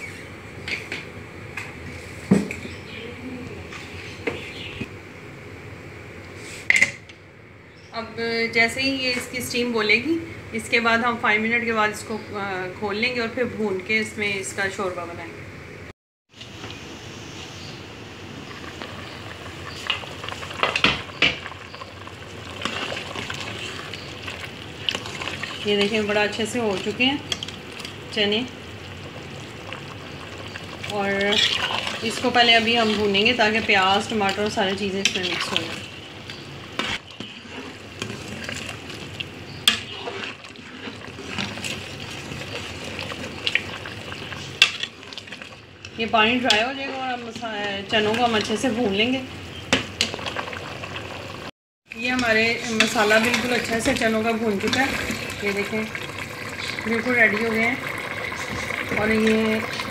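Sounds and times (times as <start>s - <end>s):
curry bubbling and sizzling: 16.3s - 59.9s.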